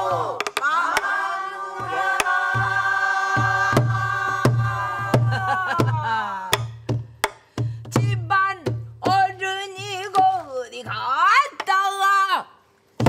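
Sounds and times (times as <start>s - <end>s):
woman singing: 7.9s - 12.2s.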